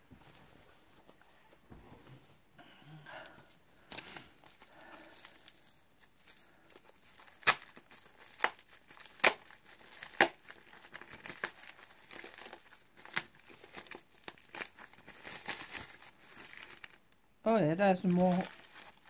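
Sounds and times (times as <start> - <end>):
wrapping crinkling and rustling: 3.8 - 17.2, 17.9 - 19.0
sharp crackles of packaging: 3.9 - 17.2, 18.0 - 19.0.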